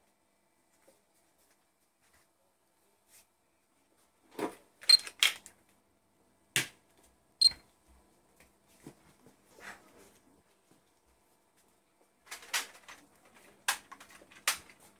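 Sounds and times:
plastic blaster clicks and snaps: 4.9 - 5.5.

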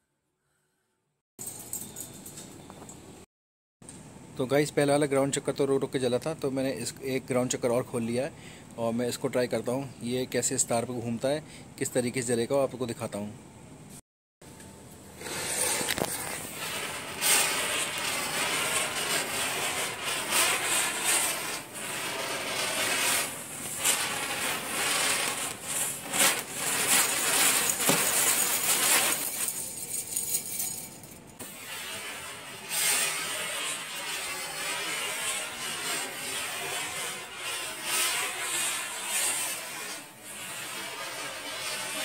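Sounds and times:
firework fizzing and crackling: 15.2 - 29.7, 31.4 - 42.0.

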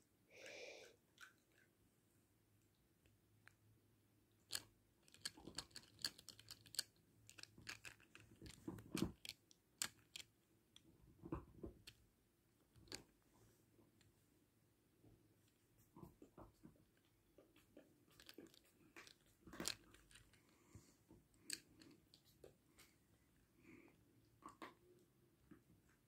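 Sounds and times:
small clicks and crackles: 4.4 - 12.0, 12.6 - 13.3, 15.4 - 23.0.

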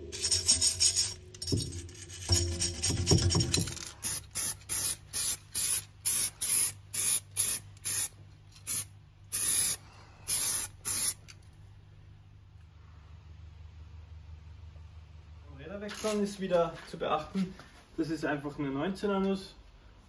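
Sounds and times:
aerosol spray can hissing: 4.0 - 11.3.

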